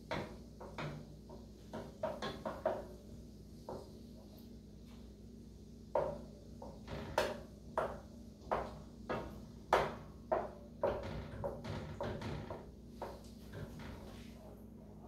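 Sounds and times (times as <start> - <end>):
wooden spoon knocking frying pan: 0.0 - 3.0, 6.0 - 13.7.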